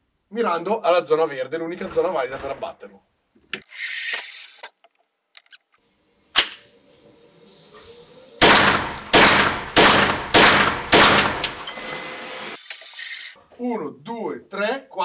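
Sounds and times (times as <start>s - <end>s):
carbine gunshots: 8.4s - 11.6s.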